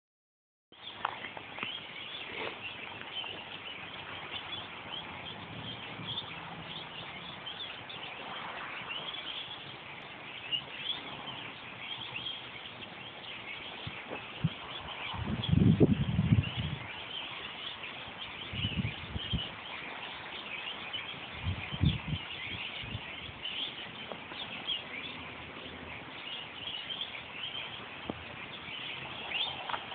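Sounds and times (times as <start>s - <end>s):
flock of birds chirping: 0.7s - 29.9s.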